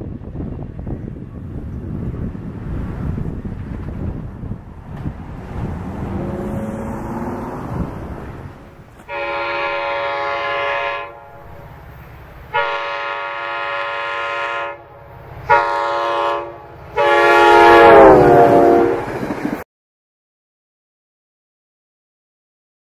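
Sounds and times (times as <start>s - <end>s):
train rumble: 0.0s - 19.6s
locomotive air horn blasts: 9.0s - 11.7s, 12.5s - 19.2s.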